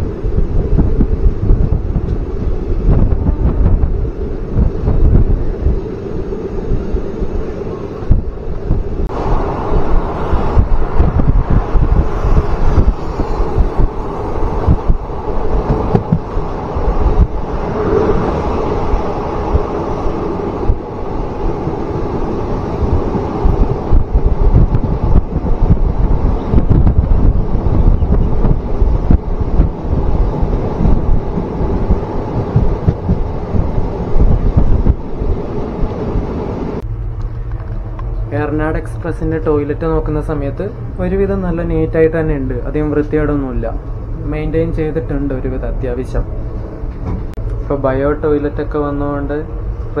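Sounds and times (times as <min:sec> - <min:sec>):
train wheels on rails: 0:00.0 - 0:38.3
wind buffeting microphone: 0:00.0 - 0:50.0.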